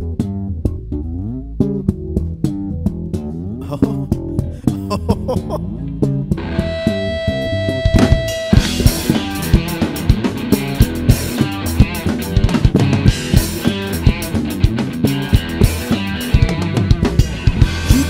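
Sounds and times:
bass guitar: 0:00.0 - 0:18.0
electric guitar: 0:01.6 - 0:18.0
drums and cymbals: 0:07.8 - 0:18.0.

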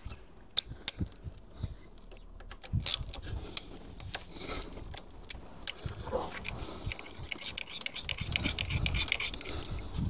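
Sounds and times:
hand tool clicking on metal: 0:04.9 - 0:09.6.

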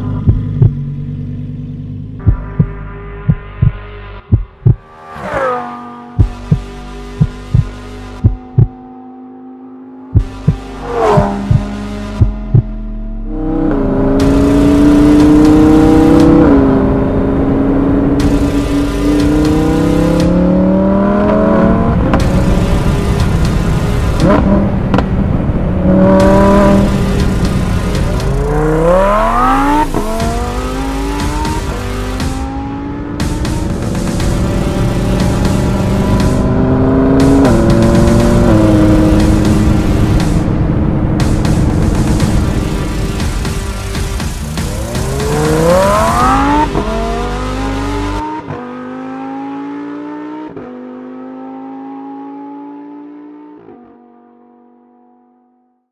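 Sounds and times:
sports car engine revving: 0:00.0 - 0:03.7, 0:04.5 - 0:55.9.

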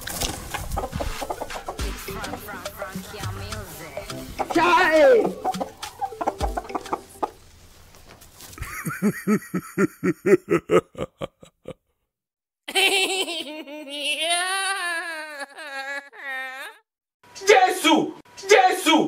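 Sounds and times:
burst of laughter: 0:08.6 - 0:11.8.

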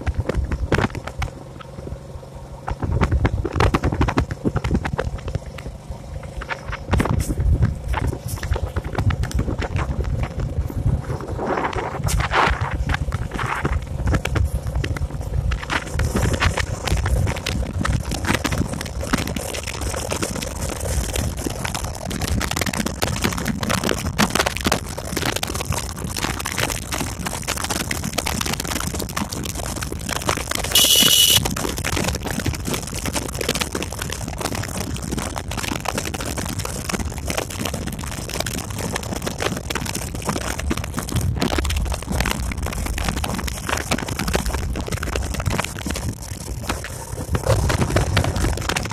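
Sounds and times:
wind noise on microphone: 0:00.0 - 0:01.3, 0:02.7 - 0:48.9
motorcycle engine running: 0:00.0 - 0:48.9
shrill beep: 0:30.8 - 0:31.4.

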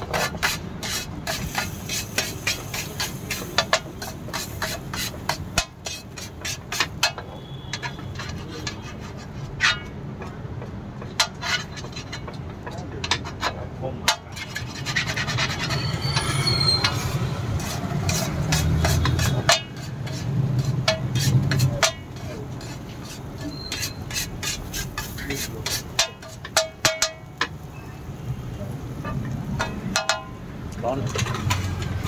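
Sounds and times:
metal spatula scraping on griddle: 0:00.0 - 0:10.4, 0:11.0 - 0:32.0.

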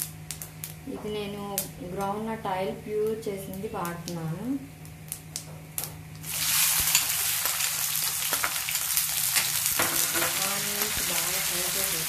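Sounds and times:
onions sizzling in hot oil: 0:06.2 - 0:12.0.

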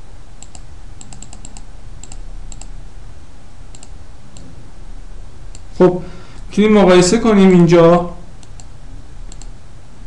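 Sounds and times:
keyboard and mouse clicks: 0:00.4 - 0:02.7, 0:03.7 - 0:04.5, 0:08.4 - 0:08.7, 0:09.3 - 0:09.5.

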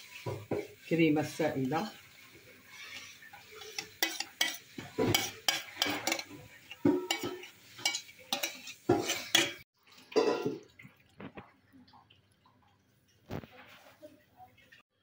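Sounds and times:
metal spoon scraping metal bowl: 0:02.8 - 0:09.6.

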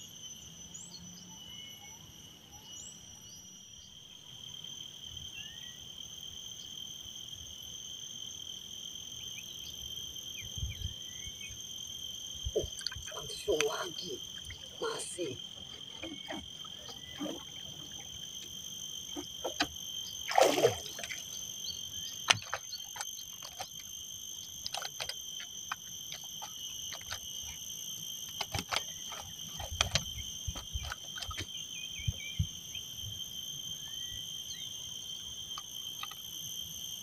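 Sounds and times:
frogs and insects calling: 0:00.0 - 0:37.0
fish splashing out of water: 0:19.2 - 0:21.5.

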